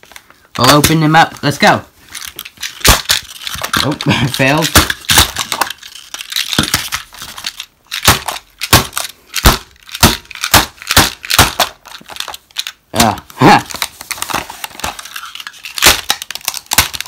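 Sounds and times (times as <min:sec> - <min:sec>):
plastic crunching: 0:00.0 - 0:17.0
toy train banging on plastic: 0:02.6 - 0:13.1, 0:14.8 - 0:17.0.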